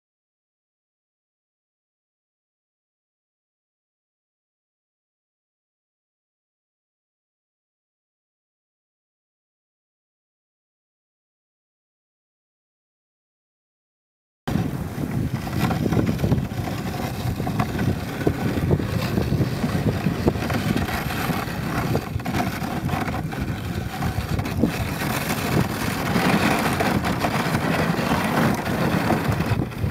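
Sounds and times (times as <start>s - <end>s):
sled runners rumbling on snow: 14.5s - 29.9s
wind buffeting microphone: 14.5s - 29.9s.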